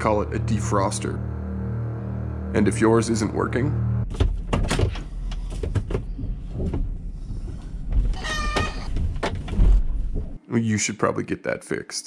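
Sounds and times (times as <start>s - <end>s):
road and engine rumble: 0.0s - 8.2s.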